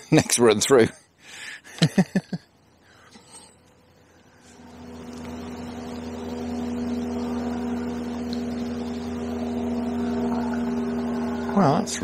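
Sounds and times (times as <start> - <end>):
steady engine drone: 2.5 - 12.0.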